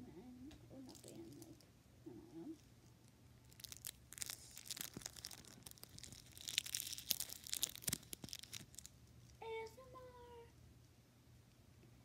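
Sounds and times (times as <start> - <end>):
fingers crinkling and scratching microphone: 0.8 - 9.4.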